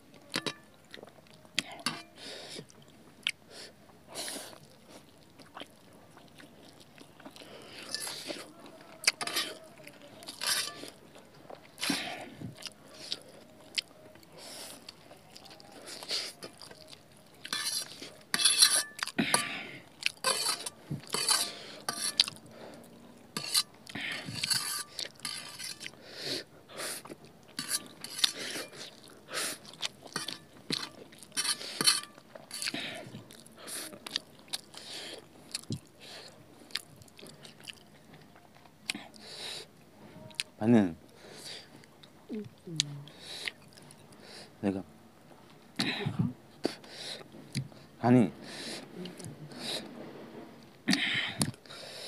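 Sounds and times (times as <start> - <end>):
person chewing: 0.2 - 44.2, 50.6 - 52.0
fork scraping on metal plate: 1.8 - 2.2, 9.2 - 9.6, 10.4 - 11.0, 17.5 - 19.6, 20.2 - 22.4, 23.4 - 25.9, 27.6 - 28.8, 30.1 - 32.8.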